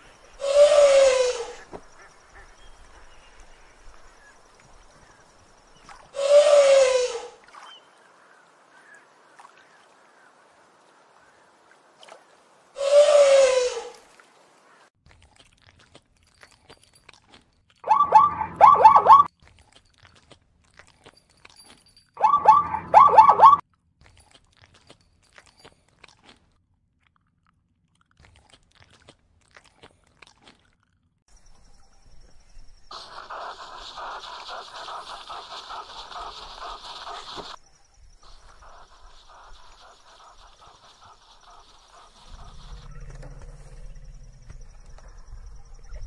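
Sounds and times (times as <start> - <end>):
elephant call: 0.4 - 1.7, 6.2 - 7.4, 12.8 - 14.0, 17.9 - 19.3, 22.2 - 23.6
zebras barking: 17.9 - 19.3, 22.2 - 23.6.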